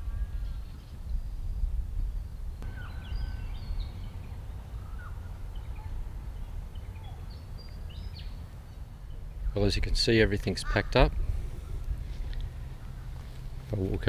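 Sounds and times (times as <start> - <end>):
wind rumbling on microphone: 0.0 - 14.0
birds chirping and whistling: 2.6 - 9.8.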